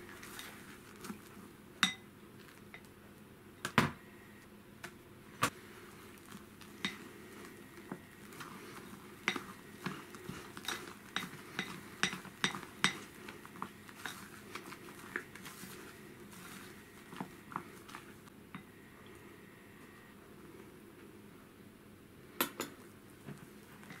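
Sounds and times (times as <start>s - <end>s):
spatula scraping glass bowl: 6.8s - 17.3s.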